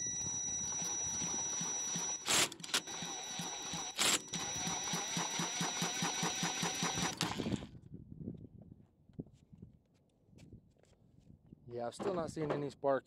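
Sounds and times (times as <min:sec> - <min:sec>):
impact gun whining: 0:00.0 - 0:07.6.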